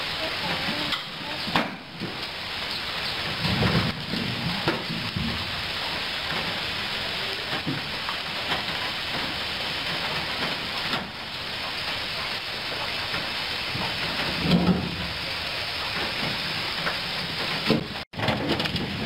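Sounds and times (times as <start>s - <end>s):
rocks clattering in steel truck bed: 13.8s - 15.2s, 16.0s - 19.0s.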